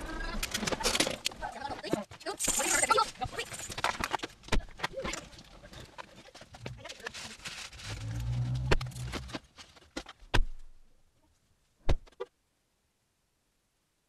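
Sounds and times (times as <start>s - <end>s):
low hum: 7.6s - 9.4s.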